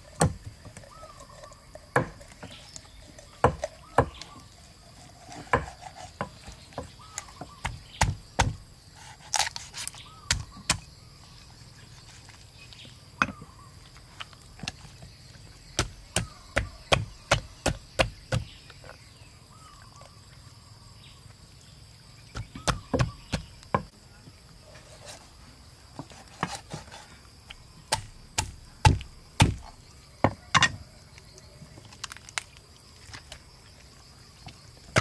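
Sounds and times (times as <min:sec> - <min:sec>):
cleaver chopping on wooden block: 0:01.9 - 0:02.6, 0:03.4 - 0:04.4, 0:05.4 - 0:08.6, 0:10.2 - 0:10.8, 0:15.8 - 0:18.6, 0:22.3 - 0:23.9, 0:27.9 - 0:30.7.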